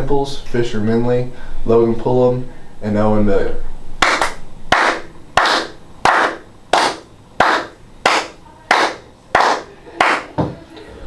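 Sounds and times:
hand claps with echo: 4.0 - 10.6.

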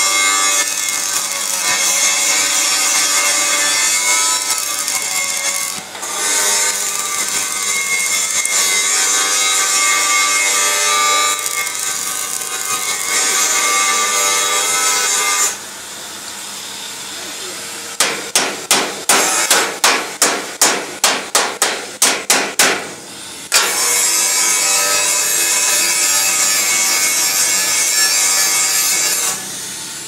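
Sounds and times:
welding arc hissing: 0.0 - 13.2.

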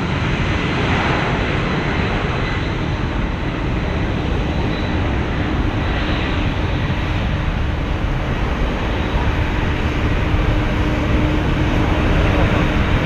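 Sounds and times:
jet engines idling: 0.0 - 13.0.

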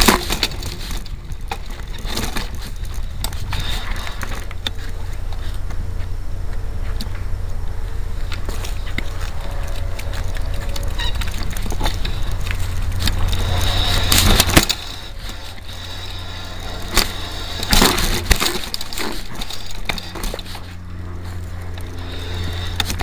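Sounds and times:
bike rattling and knocking: 0.0 - 23.0
wind and vibration rumble: 0.0 - 23.0
loud cracks and jolts: 8.2 - 23.0.

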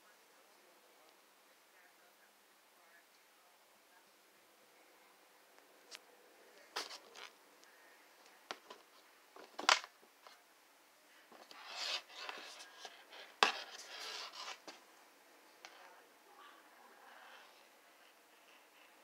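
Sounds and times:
scraping and rustling: 6.6 - 7.4, 8.5 - 10.4, 11.2 - 14.9.

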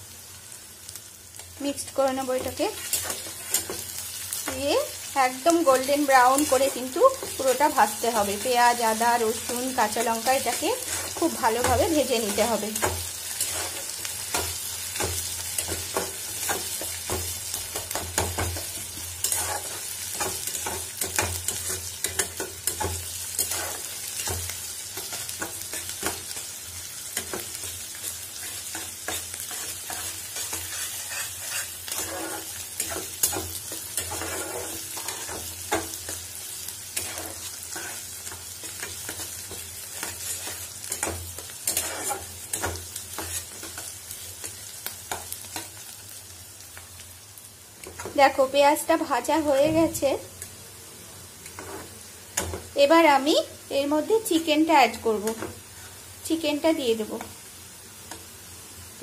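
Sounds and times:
vegetables sizzling in oil: 0.0 - 59.0
spatula scraping pan: 2.4 - 4.6, 5.6 - 26.5, 27.2 - 45.7, 51.4 - 52.6.

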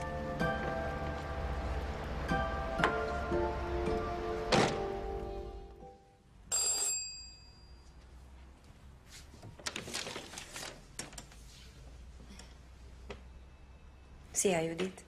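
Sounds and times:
doorbell ringing: 6.5 - 8.0.

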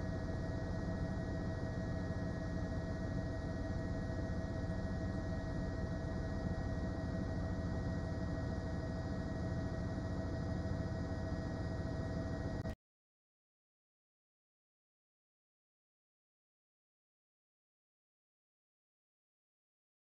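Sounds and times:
steady hum with held tones: 0.0 - 12.8.

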